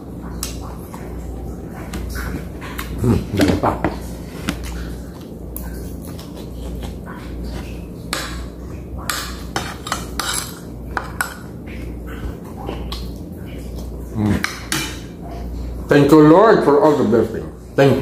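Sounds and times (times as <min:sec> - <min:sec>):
chewing and mouth sounds: 0:00.0 - 0:15.7
low steady hum: 0:00.0 - 0:18.0.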